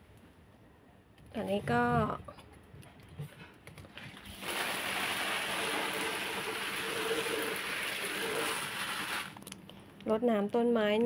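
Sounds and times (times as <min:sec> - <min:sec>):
water pouring from watering can: 0:04.3 - 0:09.4.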